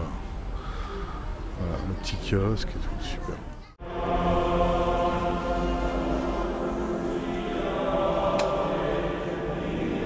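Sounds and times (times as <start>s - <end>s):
choir singing chant-like music: 3.8s - 10.0s.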